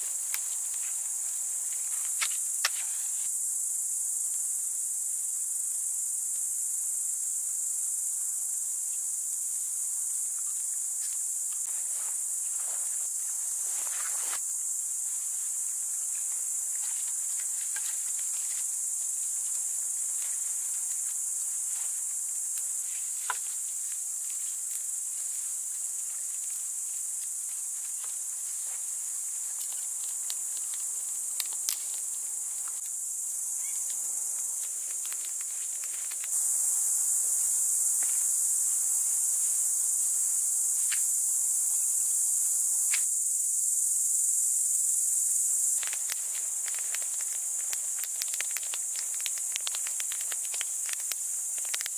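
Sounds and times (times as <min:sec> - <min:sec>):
crickets chirping: 0:00.0 - 0:51.9
campfire crackling: 0:29.2 - 0:33.1, 0:45.7 - 0:51.9.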